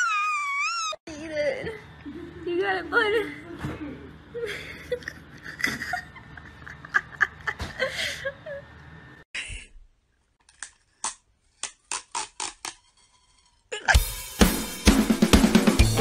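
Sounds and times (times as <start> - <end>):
person laughing and snickering: 4.4 - 8.7
drum-like hits: 14.0 - 16.0.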